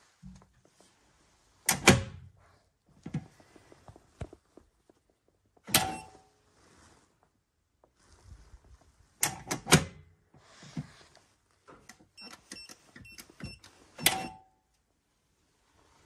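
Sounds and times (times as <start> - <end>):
keypad beeps: 5.8 - 6.2, 12.2 - 14.4.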